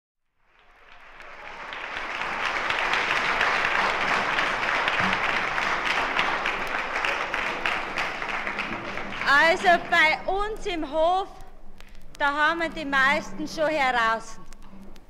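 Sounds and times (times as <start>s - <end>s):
audience applause: 0.4s - 10.7s.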